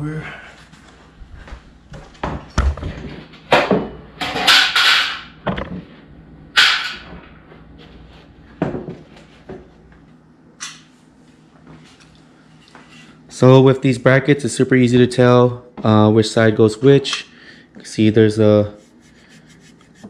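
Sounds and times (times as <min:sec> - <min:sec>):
plastic parts knocking and clunking: 0:04.5 - 0:05.8.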